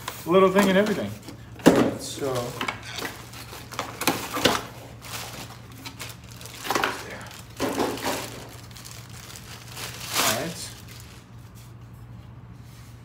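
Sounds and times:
plastic packaging crinkling: 2.2 - 11.6.

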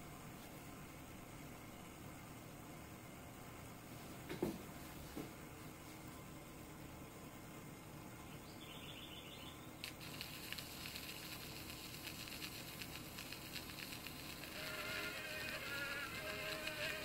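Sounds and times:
surface crackle: 9.8 - 17.0
tinny tune from phonograph: 9.8 - 17.0.

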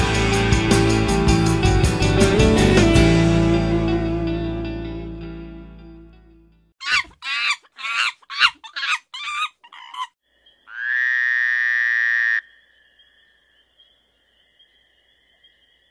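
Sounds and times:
short croaking calls: 6.8 - 15.9.

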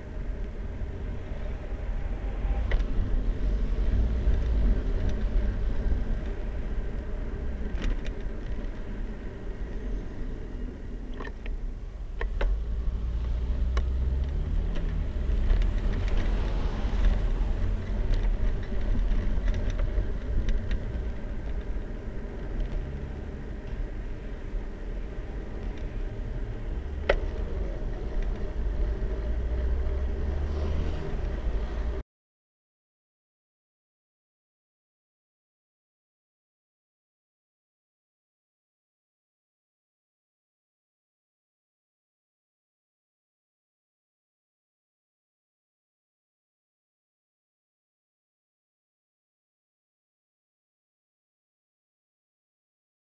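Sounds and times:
road rumble: 0.0 - 32.0
bicycle clicks and rattles: 17.0 - 22.8.

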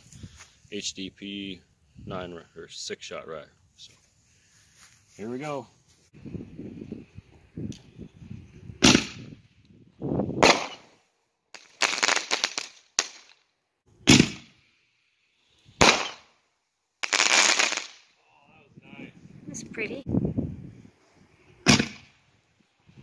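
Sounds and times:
fireworks shells exploding: 10.4 - 13.5, 15.7 - 16.4, 17.0 - 18.2.

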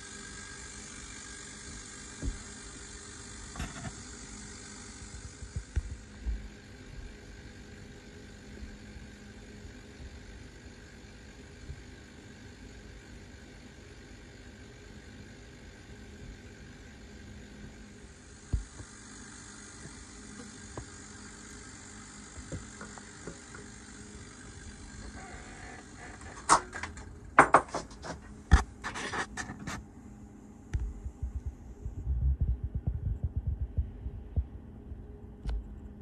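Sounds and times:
steady low hum: 0.0 - 36.0
low throbbing: 30.7 - 35.0.

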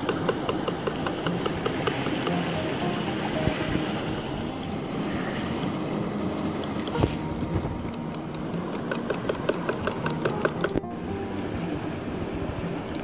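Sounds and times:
stream water rushing: 0.0 - 13.0
whisk clicking against bowl: 8.3 - 10.8.

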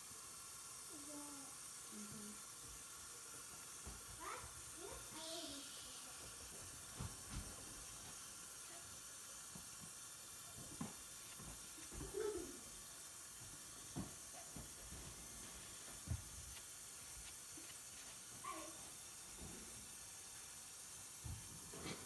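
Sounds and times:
faint steady hiss: 0.0 - 22.0
paper towel rubbing on face: 14.4 - 18.9.

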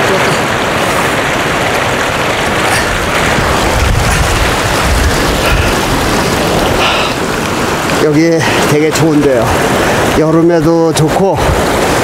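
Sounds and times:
water rushing over rocks: 0.0 - 12.0
deep rumble: 0.4 - 7.7.

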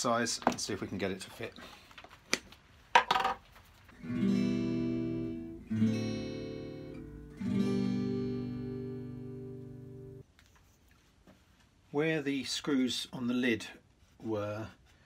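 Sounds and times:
acoustic guitar strumming: 4.0 - 10.2.

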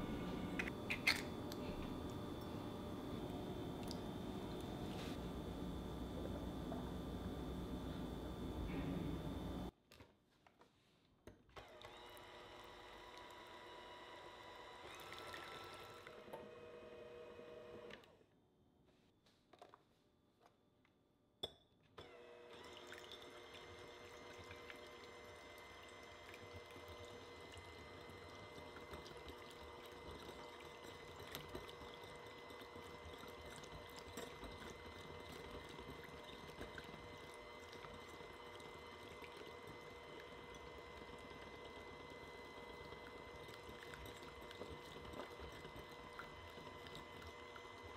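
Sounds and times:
electric hand mixer whisking: 11.7 - 18.0, 22.1 - 47.9.

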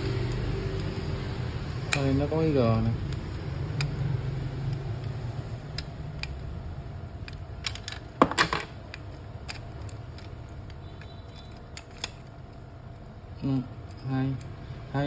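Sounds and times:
plastic and metal parts clicking: 4.6 - 14.6.

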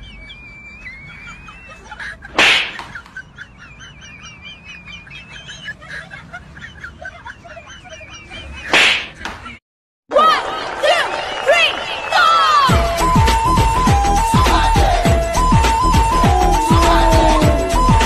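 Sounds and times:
loud sudden smack: 2.4 - 2.9, 8.7 - 9.4.

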